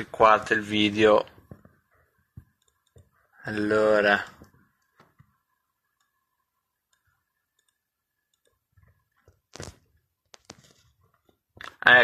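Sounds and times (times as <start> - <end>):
faint steady hum: 0.0 - 12.0
computer mouse clicks: 2.4 - 3.1, 4.4 - 6.2, 6.8 - 10.7.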